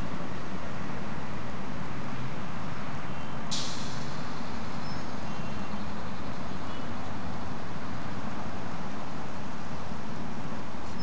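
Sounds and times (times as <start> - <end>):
street traffic: 0.0 - 11.0
short sharp hiss: 3.5 - 4.4.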